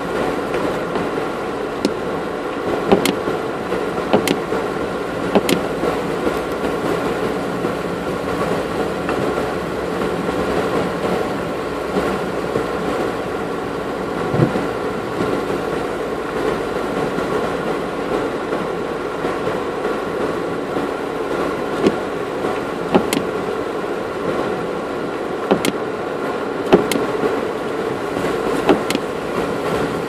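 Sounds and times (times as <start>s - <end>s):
vehicle engine drone with whine: 0.0s - 30.0s
sharp knocks: 2.9s - 3.2s, 4.1s - 4.4s, 5.4s - 5.6s, 23.0s - 23.3s, 25.5s - 25.8s, 26.7s - 27.0s
dull thud: 14.3s - 14.6s, 23.0s - 23.3s, 25.5s - 25.8s, 28.6s - 29.1s.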